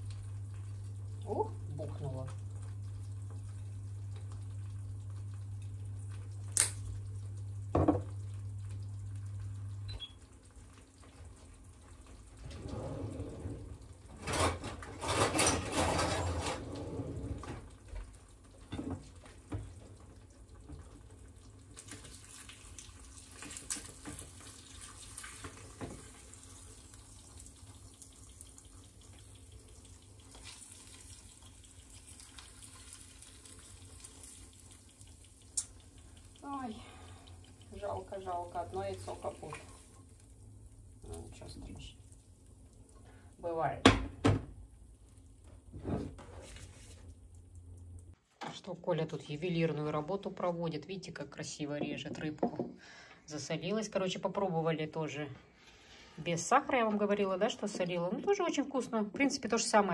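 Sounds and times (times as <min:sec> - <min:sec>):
eggs frying in a pan: 0:00.0 - 0:12.5, 0:13.6 - 0:14.9, 0:17.3 - 0:48.2
water running from a tap: 0:00.0 - 0:12.5, 0:17.6 - 0:45.0
low appliance hum: 0:00.0 - 0:59.9
dishes knocking: 0:07.8 - 0:08.1, 0:51.8 - 0:52.8.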